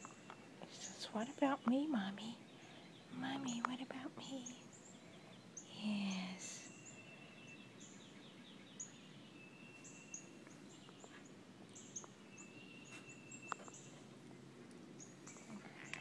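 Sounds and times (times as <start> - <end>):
birds chirping: 0.0 - 16.0
soft ticks: 3.5 - 3.8.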